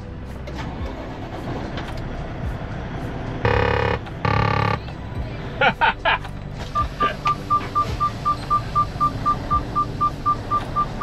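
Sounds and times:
diesel engine idling: 0.0s - 11.0s
warning chime beeping rapidly: 3.5s - 4.8s.

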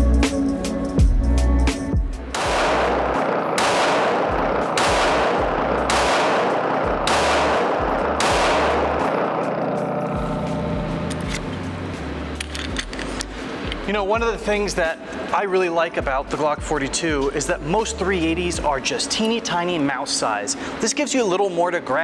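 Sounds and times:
pistol shots ringing indoors: 2.3s - 10.0s.

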